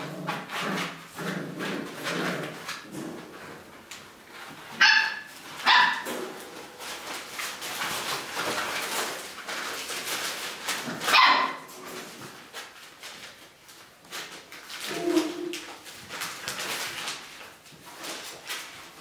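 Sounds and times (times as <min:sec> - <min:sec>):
puppies scuffling: 0:00.0 - 0:19.0
puppy barking: 0:04.8 - 0:06.1, 0:11.1 - 0:11.7.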